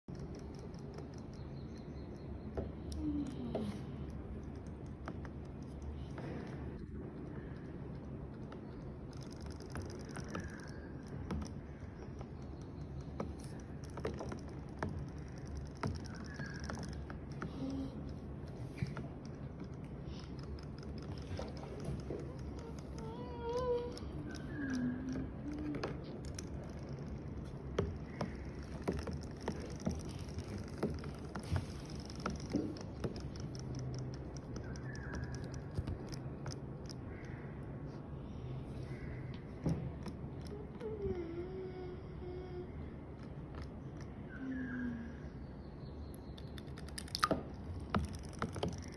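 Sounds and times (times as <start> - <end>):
faint low hum: 0.0 - 48.9
toy clicking and tapping: 0.1 - 37.4.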